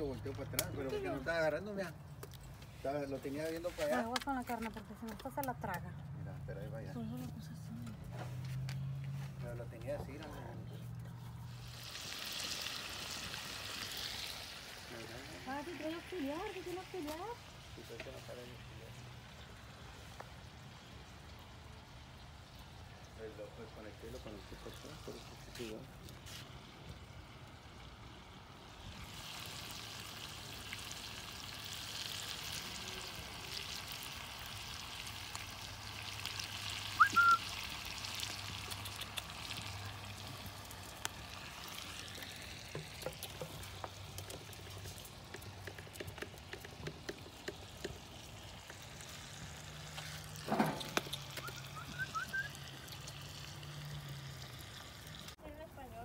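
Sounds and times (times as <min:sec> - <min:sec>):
meat sizzling in a pan: 0:11.5 - 0:25.8, 0:26.4 - 0:55.4.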